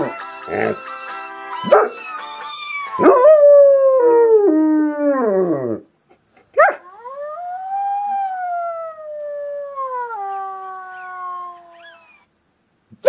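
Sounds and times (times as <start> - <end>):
dog howling: 6.8 - 12.2
dog yelping: 10.9 - 12.3.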